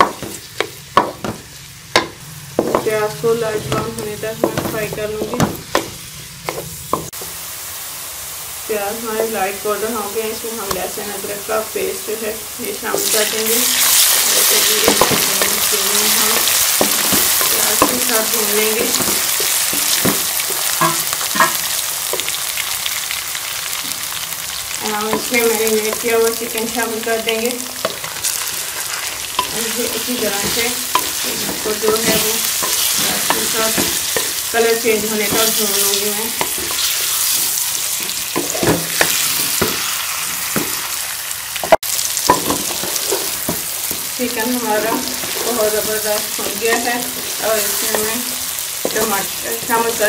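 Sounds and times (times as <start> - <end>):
onions sizzling in hot fat: 0.0 - 50.0
wooden spatula scraping pan: 27.9 - 39.6.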